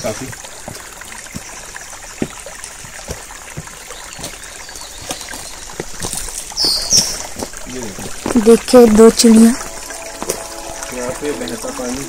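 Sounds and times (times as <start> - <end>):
small water splashes: 0.0 - 12.0
stream water rushing: 0.0 - 12.0.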